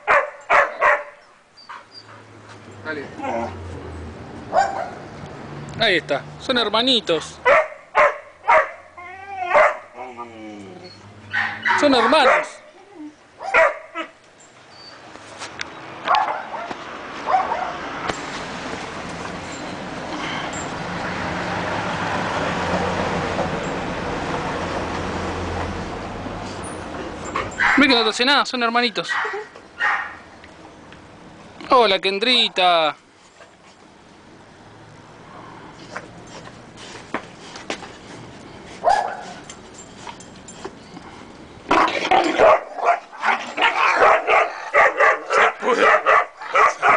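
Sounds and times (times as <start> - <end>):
road noise: 0.0 - 46.9
vehicle engine hum: 2.0 - 7.5, 15.0 - 27.8
dog whining: 8.9 - 11.8, 12.7 - 13.2
dogs growling and barking: 41.6 - 46.9.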